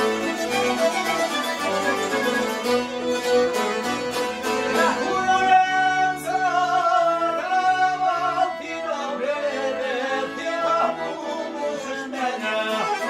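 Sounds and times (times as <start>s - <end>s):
plucked lutes: 0.0s - 6.5s
accordion: 0.0s - 13.0s
violin: 0.0s - 13.0s
man singing folk song: 4.4s - 13.0s.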